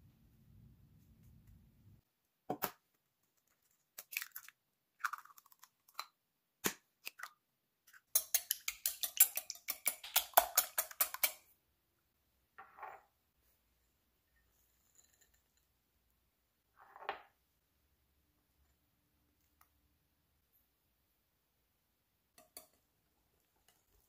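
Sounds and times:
eggs cracked into glass bowl: 4.0s - 11.4s.

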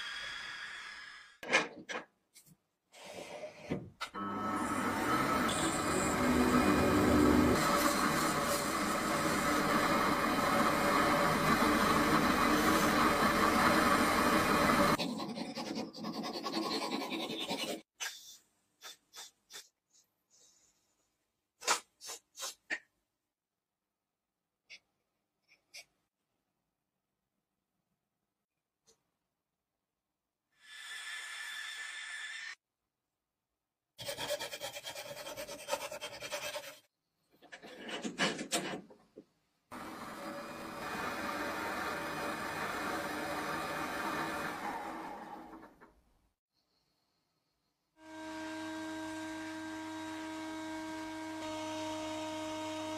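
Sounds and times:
lathe motor hum: 4.2s - 15.0s, 39.8s - 45.7s, 48.0s - 52.9s
file rasping on brass: 34.0s - 36.9s.

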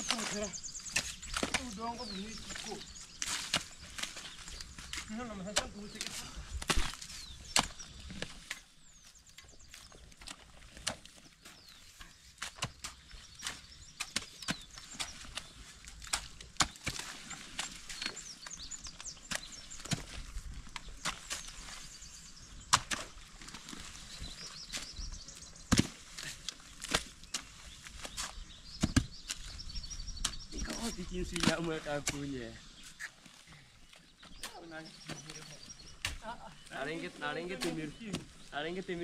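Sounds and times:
hoe chopping into wet soil: 0.0s - 8.6s, 12.4s - 32.3s.

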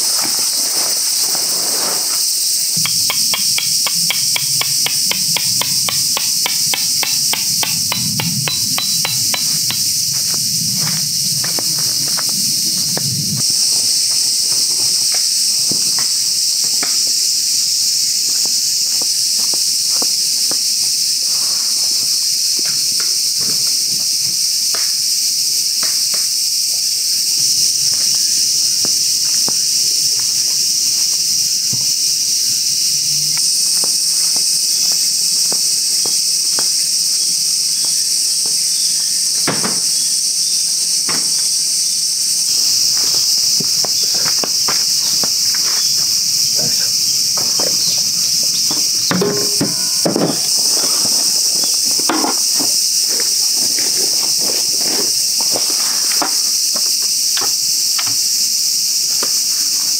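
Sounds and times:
footsteps: 0.0s - 13.2s
insects chorus: 0.0s - 59.9s
camp gear knocking: 2.8s - 10.4s, 46.6s - 51.0s.

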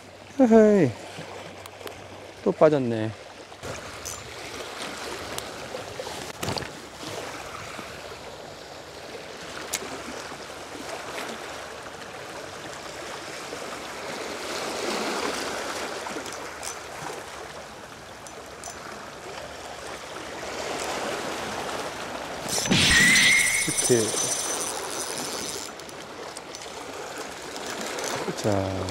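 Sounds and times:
waves washing over rocks: 19.6s - 28.9s.

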